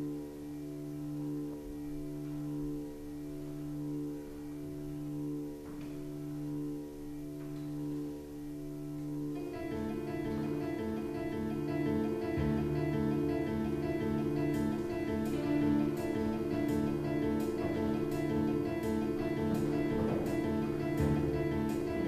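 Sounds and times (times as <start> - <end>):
held chord: 0.0 - 22.0
light ticking beat: 9.4 - 22.0.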